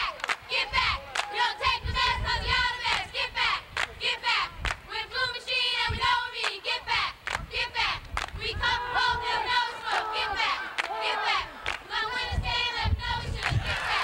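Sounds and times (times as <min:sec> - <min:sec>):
sharp claps: 0:00.0 - 0:00.5, 0:01.1 - 0:01.4, 0:02.9 - 0:03.1, 0:03.7 - 0:04.0, 0:04.6 - 0:04.9, 0:07.2 - 0:08.4, 0:11.6 - 0:11.9
crowd shouting and cheering: 0:00.0 - 0:04.6, 0:08.4 - 0:14.0.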